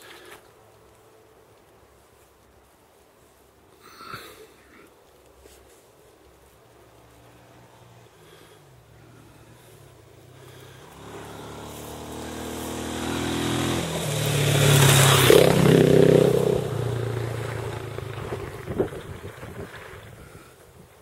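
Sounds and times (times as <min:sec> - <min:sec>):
motorcycle engine passing by: 0:07.2 - 0:20.6.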